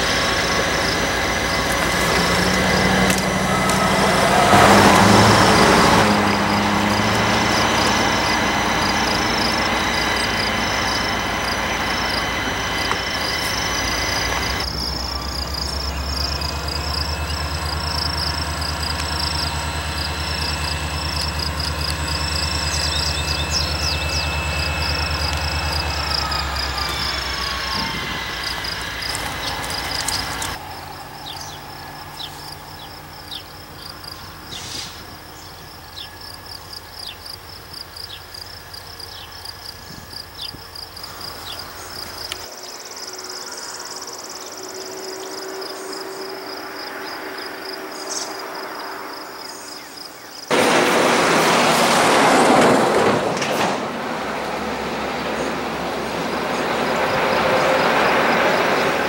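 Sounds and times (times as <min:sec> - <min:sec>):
insects chirping: 0:00.0 - 0:53.2, 0:53.8 - 0:59.0
diesel locomotive running: 0:00.0 - 0:59.0
loud rushing noise: 0:50.5 - 0:59.0.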